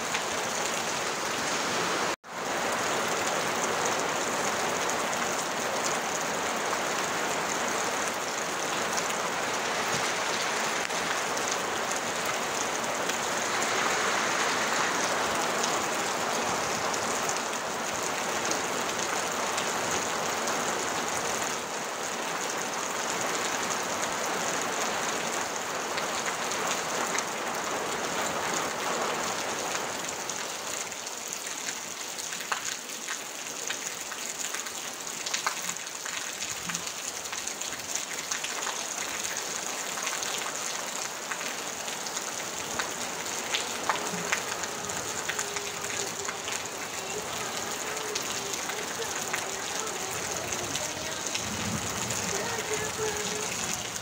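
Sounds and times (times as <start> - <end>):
rain on a tin roof: 0.0 - 54.0
raindrops ticking on metal: 42.8 - 54.0.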